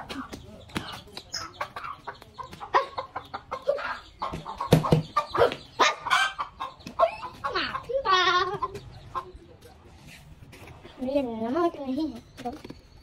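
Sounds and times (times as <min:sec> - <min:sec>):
hen clucking: 0:00.0 - 0:09.9
chicks peeping: 0:00.0 - 0:13.0.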